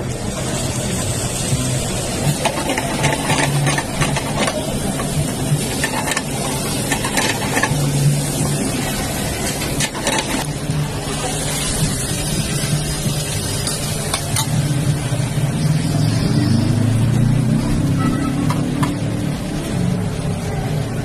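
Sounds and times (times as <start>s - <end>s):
vegetables frying: 0.0s - 20.3s
wooden spatula scraping pan: 5.6s - 7.8s, 9.6s - 10.5s.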